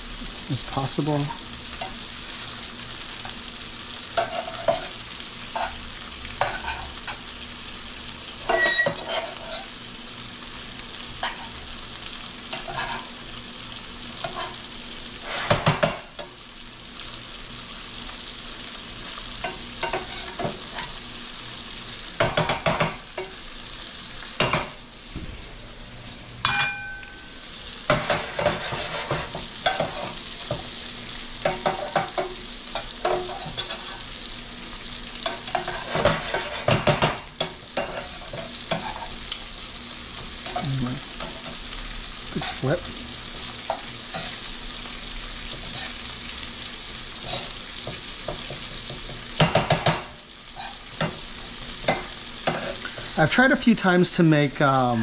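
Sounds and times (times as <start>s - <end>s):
shrimp sizzling in a skillet: 0.0s - 55.0s
metal tongs clinking on pan: 8.4s - 9.7s
short metallic ring: 26.4s - 27.3s.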